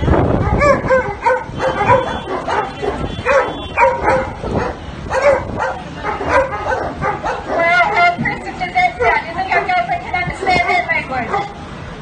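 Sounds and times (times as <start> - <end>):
dog barking: 0.4 - 8.2, 9.0 - 9.9, 10.6 - 11.6.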